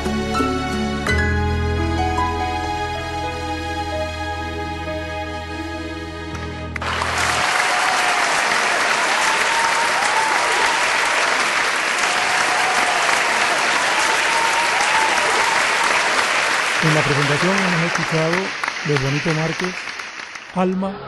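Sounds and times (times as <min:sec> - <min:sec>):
audience applause: 0:06.8 - 0:21.0.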